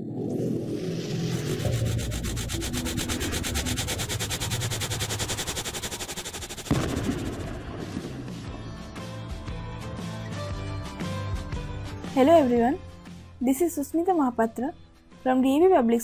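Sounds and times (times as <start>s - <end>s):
rapid pulsing hiss: 0.7s - 7.8s
sudden hit: 6.7s - 8.6s.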